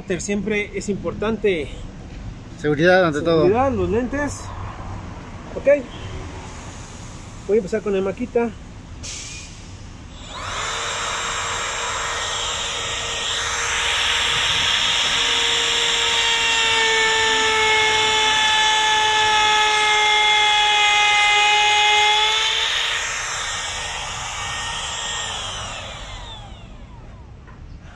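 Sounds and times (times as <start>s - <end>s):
router bit cutting wood: 10.1s - 27.4s
router whining: 10.1s - 27.6s.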